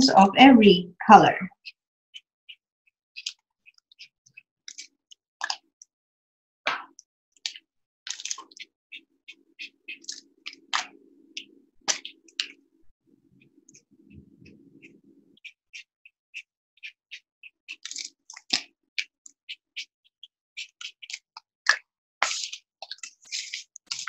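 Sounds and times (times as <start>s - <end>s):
low steady hum: 10.4s - 15.4s.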